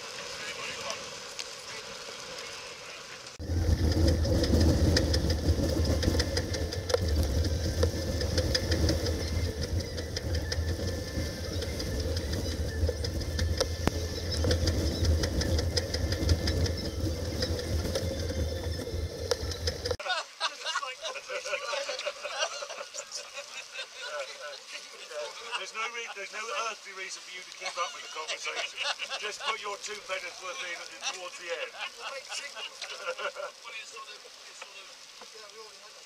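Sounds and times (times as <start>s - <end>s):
wind and water hiss: 0.0s - 36.0s
low rumble: 3.4s - 20.0s.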